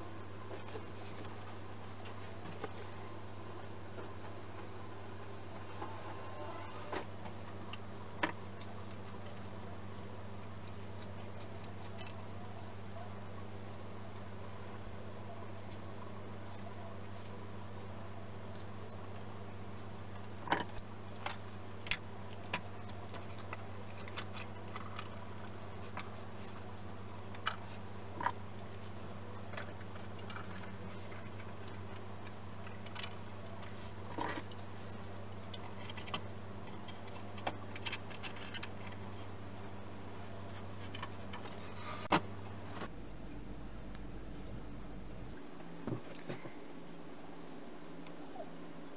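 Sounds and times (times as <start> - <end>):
low hum: 0.0 - 48.9.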